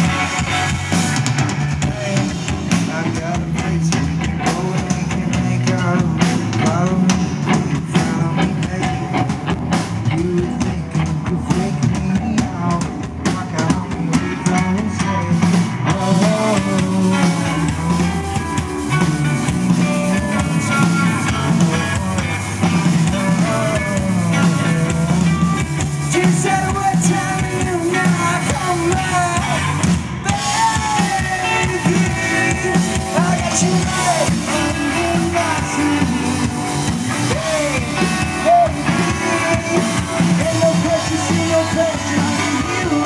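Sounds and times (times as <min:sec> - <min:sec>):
distorted electric guitars: 0:00.0 - 0:43.0
drum kit: 0:00.0 - 0:43.0
electric bass: 0:00.0 - 0:43.0.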